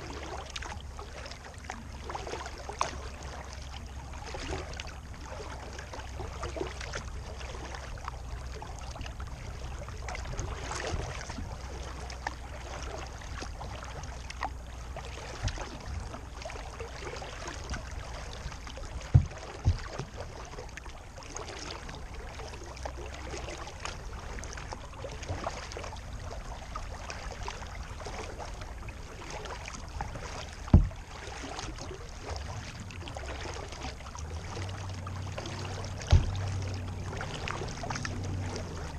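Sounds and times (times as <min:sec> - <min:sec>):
low steady rumble: 0:00.0 - 0:38.9
water lapping against kayak hull: 0:00.0 - 0:38.9
sharp knocks: 0:30.7 - 0:30.9.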